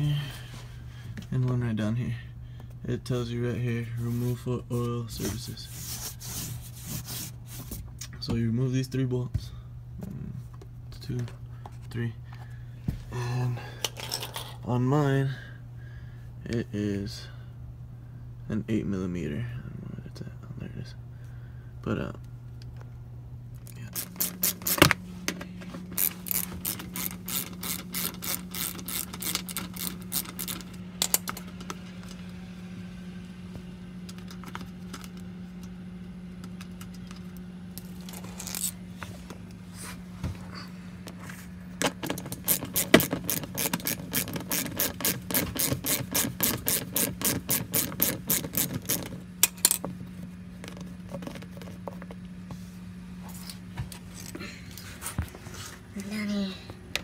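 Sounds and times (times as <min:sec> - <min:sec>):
steady low hum: 0:00.0 - 0:57.0
ratchet wrench clicking: 0:24.0 - 0:24.9, 0:26.0 - 0:31.2, 0:42.4 - 0:49.6.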